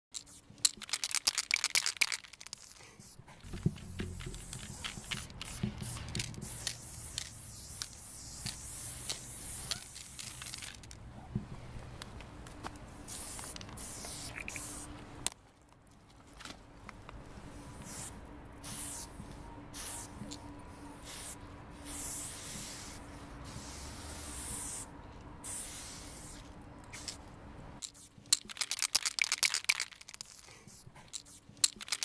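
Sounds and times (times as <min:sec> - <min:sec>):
spray paint can hissing: 0:00.2 - 0:11.0, 0:13.1 - 0:14.9, 0:17.8 - 0:19.1, 0:19.8 - 0:20.4, 0:21.0 - 0:27.2, 0:27.8 - 0:32.0.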